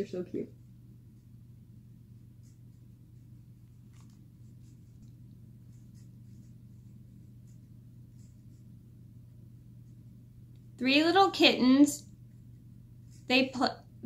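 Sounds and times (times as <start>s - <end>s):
steady low hum: 0.0s - 14.0s
paper pages rustling: 3.6s - 6.6s.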